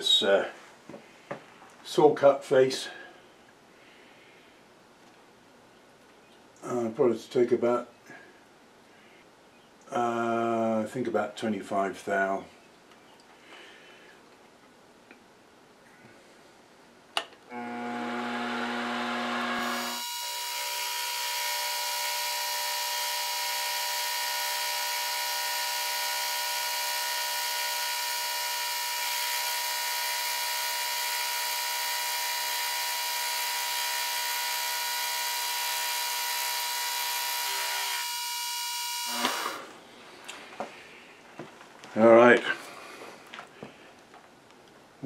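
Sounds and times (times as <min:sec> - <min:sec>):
milling machine cutting metal: 0:17.5 - 0:39.7.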